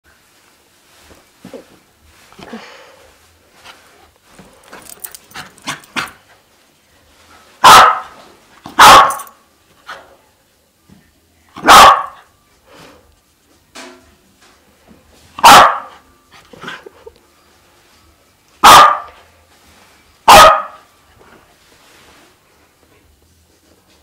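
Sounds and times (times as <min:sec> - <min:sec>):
dog barking sharply: 0:07.6 - 0:08.1, 0:08.8 - 0:09.3, 0:11.6 - 0:12.2, 0:15.4 - 0:15.9, 0:18.6 - 0:19.1, 0:20.3 - 0:20.8.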